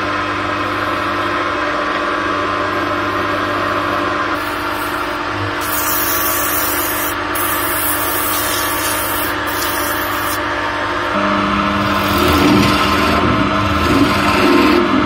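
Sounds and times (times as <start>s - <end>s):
lathe motor hum: 0.0s - 15.0s
sandpaper hissing on spinning wood: 4.4s - 10.4s.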